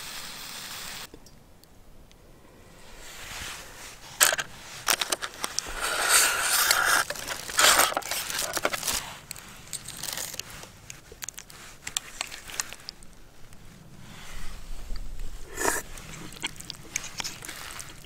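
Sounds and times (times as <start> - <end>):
pan scraping and rustling: 3.0 - 10.5.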